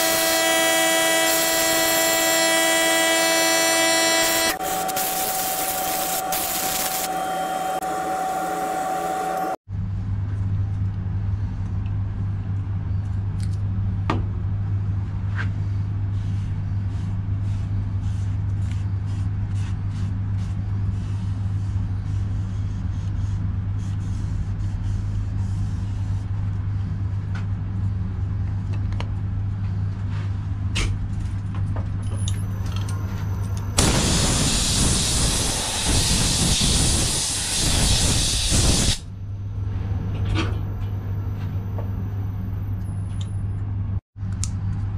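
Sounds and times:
compressed air hissing: 33.8s - 39.0s.

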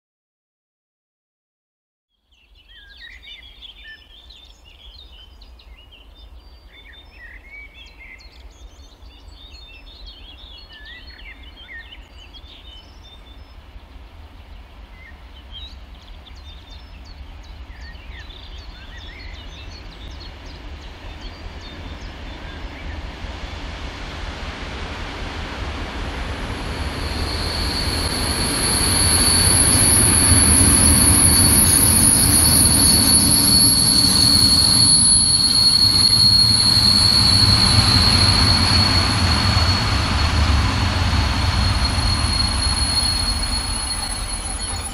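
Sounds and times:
wheels whining on rails: 18.9s - 44.9s
diesel locomotive rumble: 23.4s - 44.9s.

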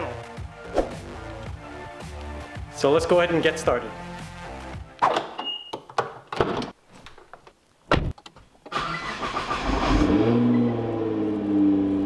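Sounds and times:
car engine starting and idling: 8.7s - 12.0s.

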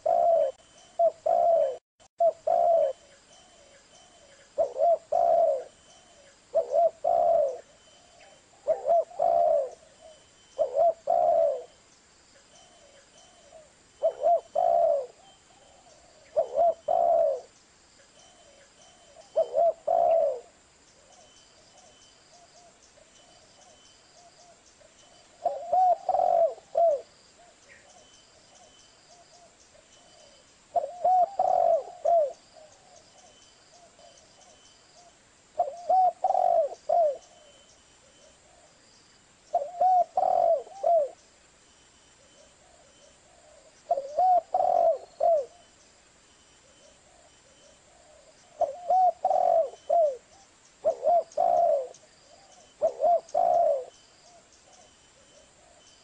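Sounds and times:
dove cooing: 0.0s - 11.8s, 12.4s - 17.6s, 18.2s - 38.8s, 39.5s - 41.2s, 42.2s - 45.7s, 46.6s - 56.0s.

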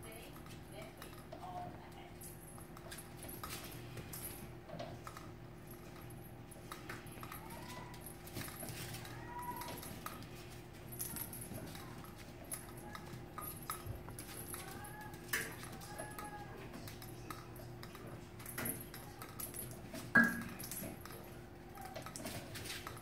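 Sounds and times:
metal stand jangling: 5.0s - 23.0s.

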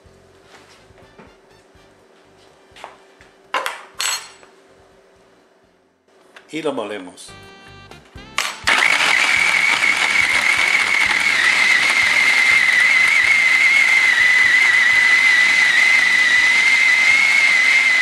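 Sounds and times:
food processor grinding meat: 8.4s - 18.0s.

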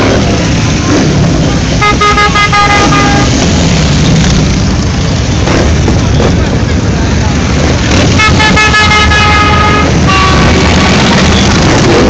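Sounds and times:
horn tooting short blasts: 1.8s - 3.4s, 8.2s - 11.0s.

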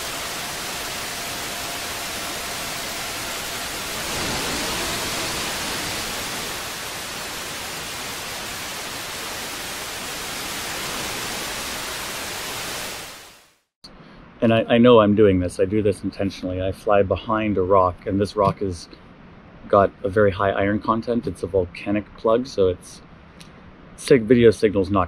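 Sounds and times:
static hiss: 0.0s - 13.6s.

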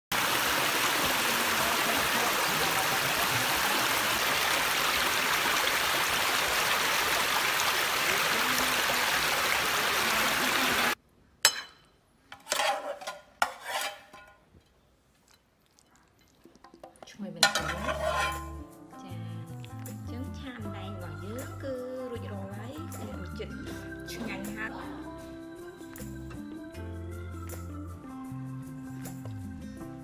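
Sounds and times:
stream rushing over rocks: 0.1s - 11.0s.

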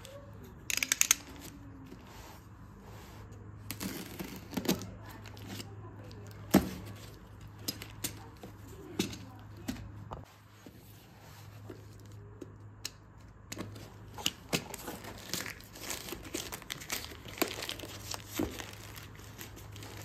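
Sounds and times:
plastic crinkling: 13.6s - 20.0s.

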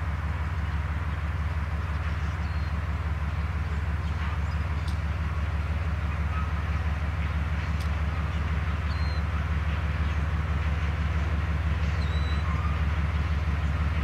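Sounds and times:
diesel locomotive engine rumbling: 0.0s - 14.0s
faint bird chirps: 8.9s - 9.2s.

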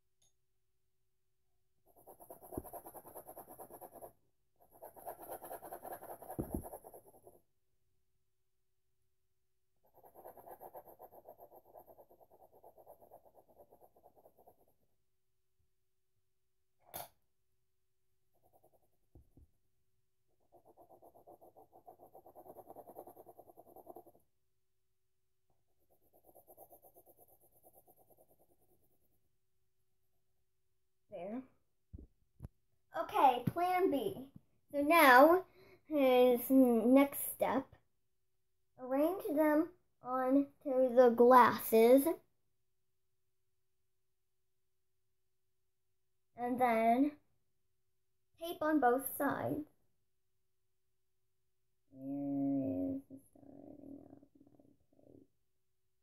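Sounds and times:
pencil scribbling on paper: 1.8s - 7.5s, 9.8s - 15.0s, 18.3s - 19.4s, 20.3s - 24.4s, 25.6s - 29.3s.

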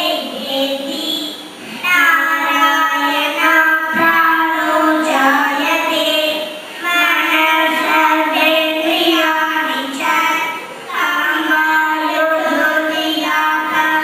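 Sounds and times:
girls singing together: 1.8s - 14.0s.

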